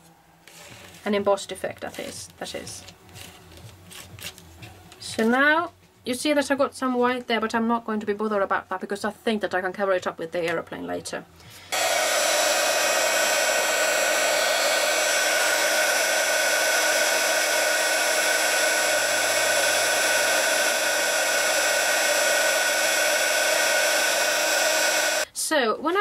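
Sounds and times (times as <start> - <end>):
heat gun fan blowing: 11.5 - 25.3.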